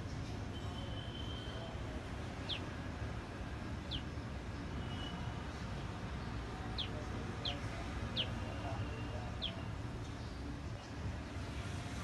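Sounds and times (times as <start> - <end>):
small bird chirping: 2.4 - 2.7, 3.8 - 5.2, 6.2 - 11.0.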